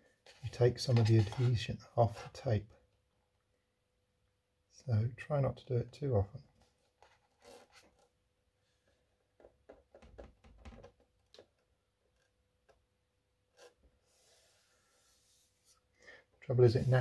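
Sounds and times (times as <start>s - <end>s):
faint soft hiss: 13.6s - 17.0s.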